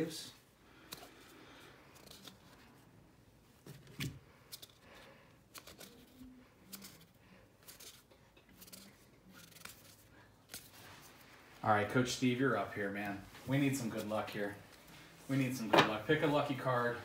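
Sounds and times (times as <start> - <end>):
trading cards being flipped: 1.8 - 2.7, 3.7 - 11.2.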